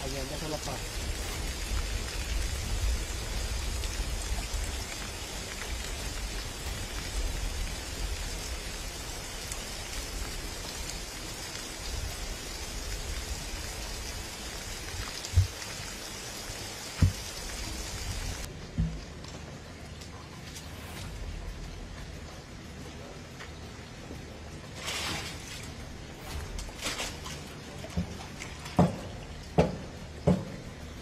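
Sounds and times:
wind rumble on microphone: 0:00.0 - 0:15.9, 0:17.0 - 0:18.5
rain-like water hiss: 0:00.0 - 0:31.0
low thumps: 0:17.0 - 0:17.6.

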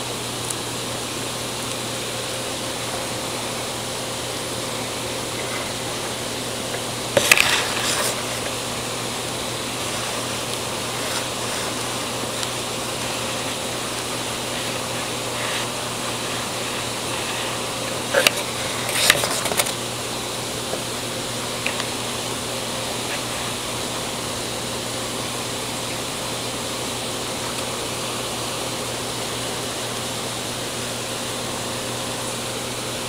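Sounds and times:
background hiss: 0:00.2 - 0:26.6
crackling rustle: 0:00.3 - 0:24.0.

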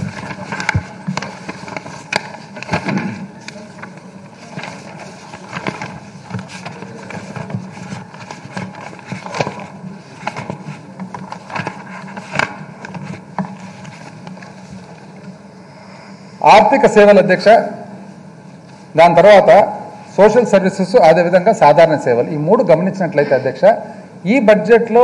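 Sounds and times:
papers rustling: 0:00.0 - 0:15.3.

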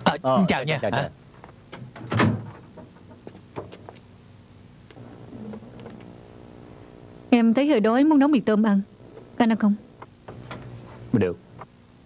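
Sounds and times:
door shutting with a thud: 0:01.7 - 0:03.7.

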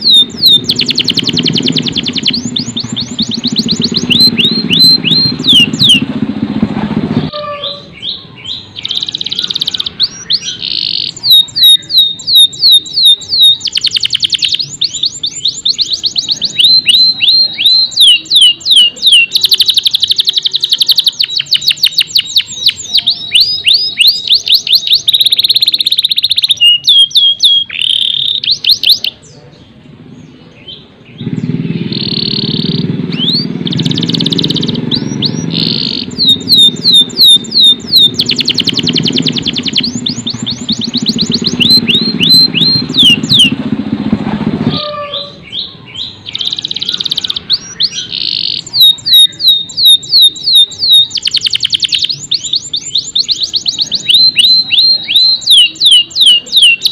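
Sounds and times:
low rumble: 0:00.0 - 0:08.0, 0:31.1 - 0:45.6
canary singing trills: 0:00.0 - 0:44.0, 0:44.6 - 0:56.9.

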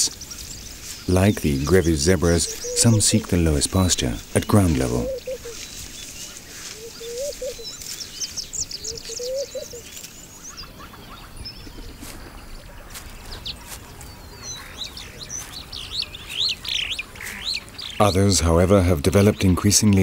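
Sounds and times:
lower warbling bird call: 0:00.0 - 0:18.2
birds chirping: 0:00.0 - 0:20.0
faint outdoor hiss: 0:00.0 - 0:20.0.

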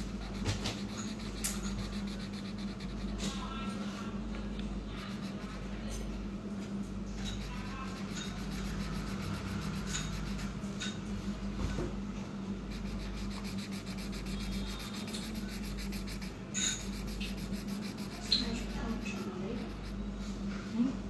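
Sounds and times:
pen strokes on paper: 0:00.0 - 0:03.5, 0:12.7 - 0:20.0
steady low hum: 0:00.0 - 0:21.0.

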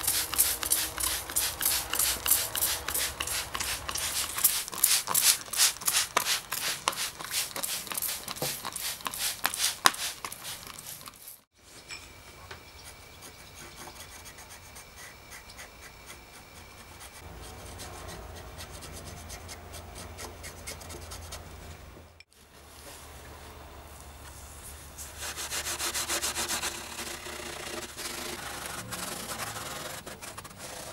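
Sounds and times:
spray bottle spritzing: 0:00.0 - 0:11.4
paintbrush scratching on wood: 0:00.0 - 0:11.5, 0:12.8 - 0:21.4, 0:24.2 - 0:30.9.

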